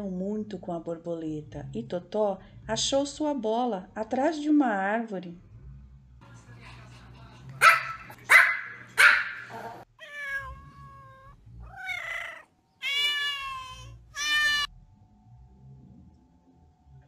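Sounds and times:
cat meowing: 10.0s - 14.7s.

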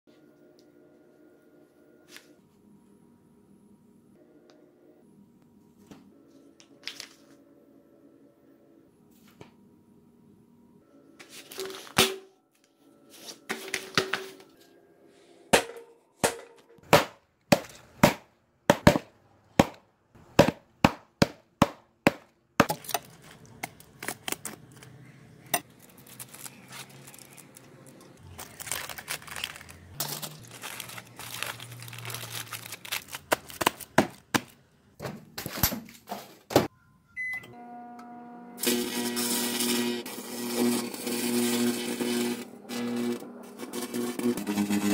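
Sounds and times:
microwave oven humming: 0.1s - 6.7s, 37.2s - 44.8s
hammer striking plastic card: 15.6s - 19.8s, 20.4s - 22.8s
envelope paper rustling: 23.0s - 34.6s
crackling: 25.6s - 34.0s.

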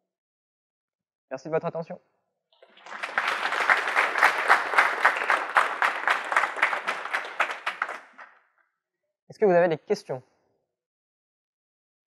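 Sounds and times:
audience applauding: 2.6s - 8.4s.

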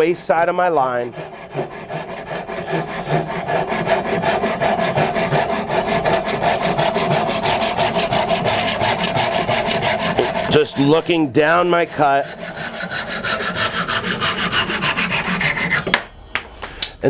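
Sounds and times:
handsaw cutting wood: 0.8s - 15.9s.

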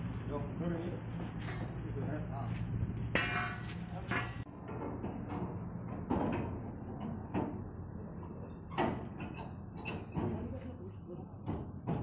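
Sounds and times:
metal knocks and thuds: 11.4s - 12.0s.

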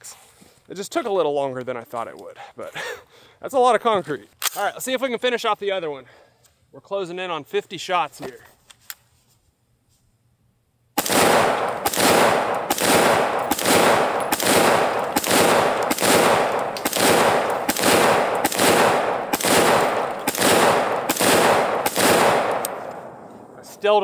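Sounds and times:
rifle firing shots: 11.0s - 24.0s.

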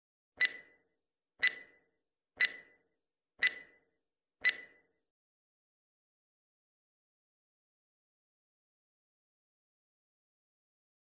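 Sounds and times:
sharp clock ticks: 0.4s - 0.8s, 1.4s - 2.8s, 3.4s - 3.8s, 4.4s - 4.8s.

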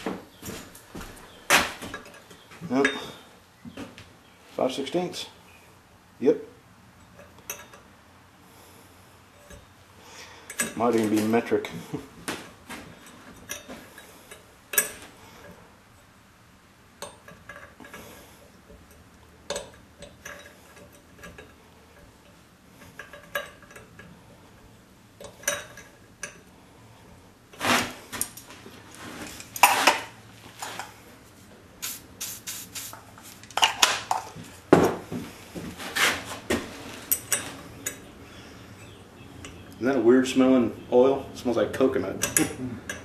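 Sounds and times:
wrench clinking on metal: 7.0s - 7.9s, 10.4s - 11.6s, 12.9s - 15.6s, 17.0s - 26.5s, 37.1s - 38.1s, 42.0s - 43.0s.

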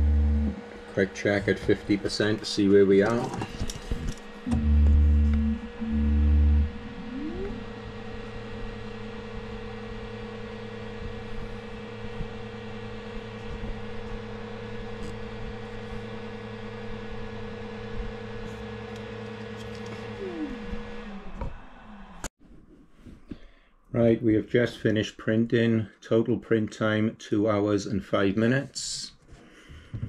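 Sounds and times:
loud low buzz: 0.0s - 22.3s
stepper motor whine: 0.0s - 22.3s.

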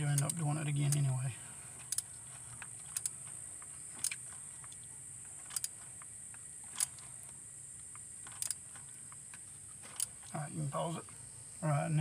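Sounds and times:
ratchet clicks: 0.0s - 1.1s, 1.8s - 3.2s, 4.0s - 4.3s, 5.4s - 5.9s, 6.7s - 7.1s, 8.2s - 8.8s, 9.9s - 10.3s
crickets chirring: 0.0s - 12.0s.

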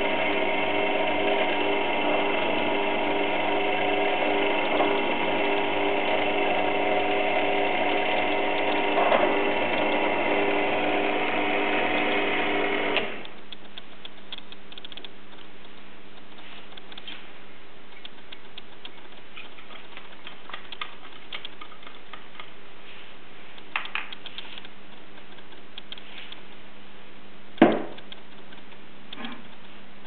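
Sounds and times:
drill press motor running: 0.0s - 13.4s.

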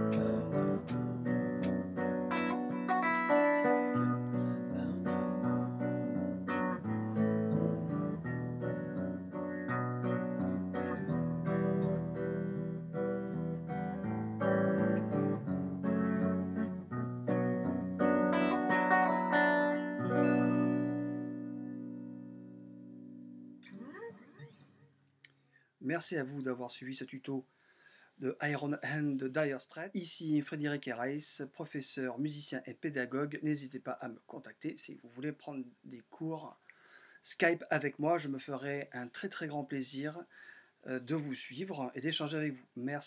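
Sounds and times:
fingerpicked acoustic guitar: 0.0s - 24.9s.

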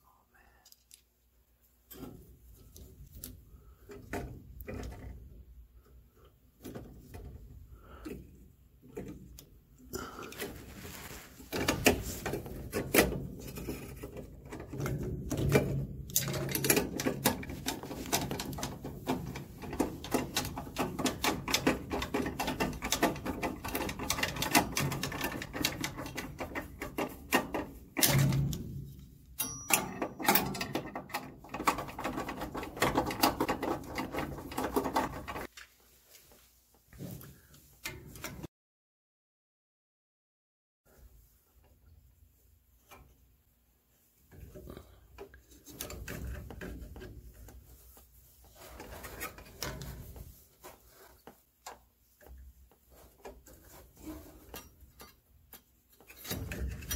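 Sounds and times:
tools clattering on sheet metal: 11.5s - 35.5s.

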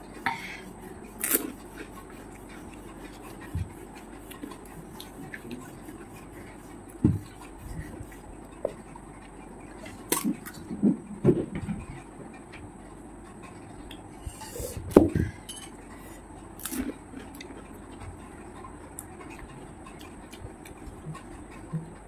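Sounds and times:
chewing: 0.0s - 10.8s, 16.6s - 22.0s.

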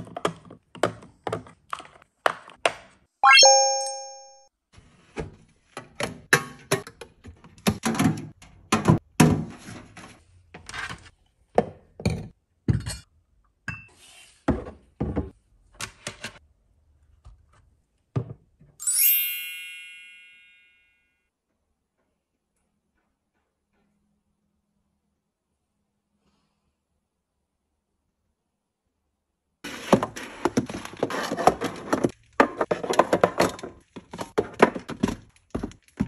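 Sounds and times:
bright ringing chime: 3.2s - 4.5s, 18.8s - 21.2s.

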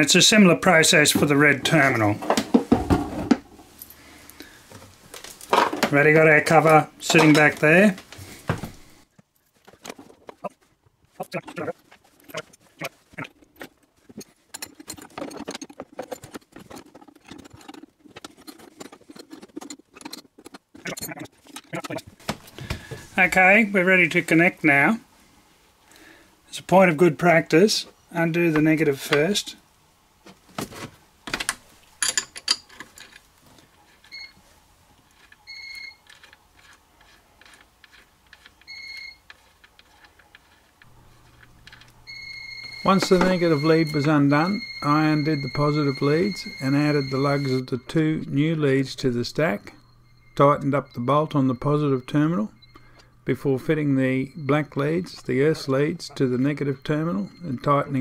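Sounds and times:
low steady hum: 0.0s - 58.0s
metal clicks and scrapes: 11.2s - 22.2s, 35.0s - 42.0s
short electronic beeps: 42.1s - 48.4s.

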